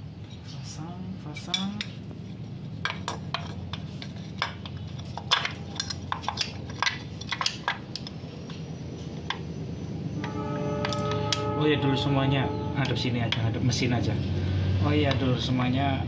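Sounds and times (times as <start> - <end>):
small metal parts clinking: 2.8 - 9.4.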